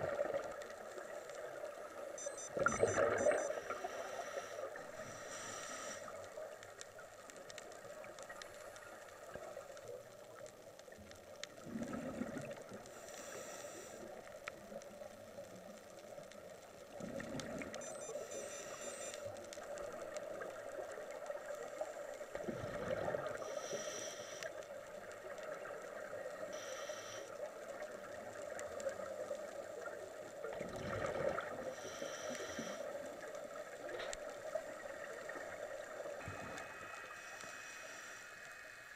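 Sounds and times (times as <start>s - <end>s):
steady underwater drone: 0.0s - 38.9s
hiss of inhaling through regulator: 3.4s - 6.4s, 12.9s - 14.3s, 18.1s - 19.3s, 23.3s - 24.7s, 26.3s - 27.7s, 31.7s - 33.2s, 36.2s - 38.9s
bubbling exhaled air: 11.6s - 12.7s, 22.4s - 23.4s, 30.6s - 31.7s.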